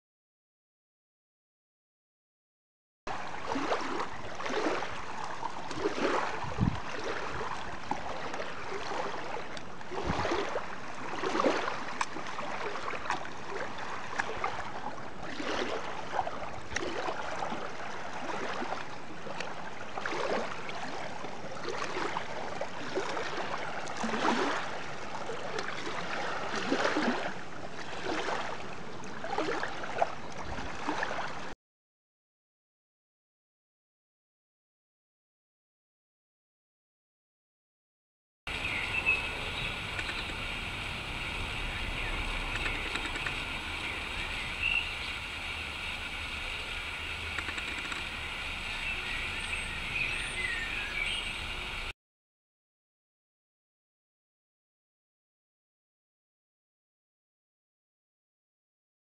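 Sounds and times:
water rushing and splashing: 0:03.1 - 0:31.5, 0:38.5 - 0:51.9.

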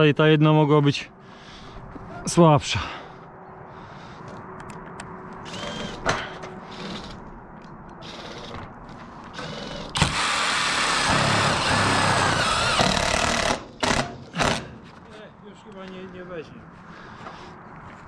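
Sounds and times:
impact driver driving screw: 0:05.5 - 0:07.2, 0:08.0 - 0:08.6, 0:09.3 - 0:14.7.

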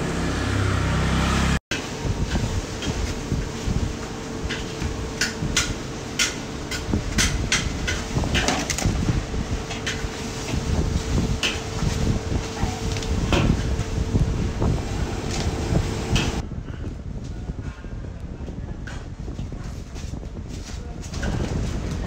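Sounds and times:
steady hum: 0:01.8 - 0:19.2.

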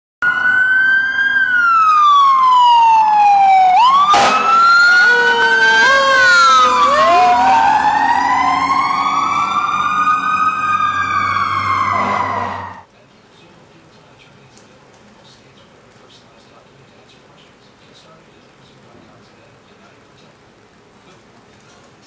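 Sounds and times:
fire truck sirens wailing: 0:00.2 - 0:12.9.

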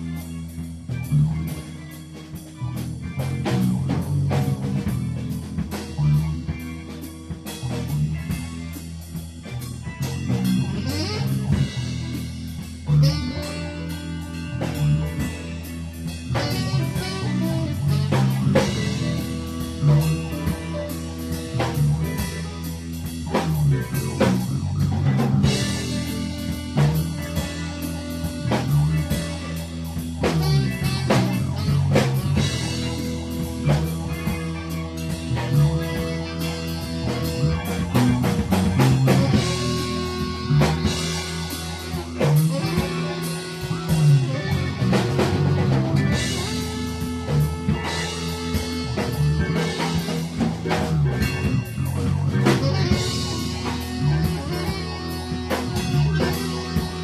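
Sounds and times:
jazz-rock fusion band: 0:00.0 - 0:57.0
repeating bass figure: 0:00.0 - 0:57.0.

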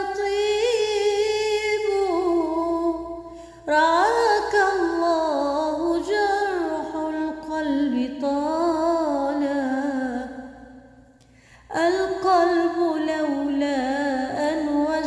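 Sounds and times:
woman singing unaccompanied: 0:00.0 - 0:10.6, 0:11.7 - 0:15.0.

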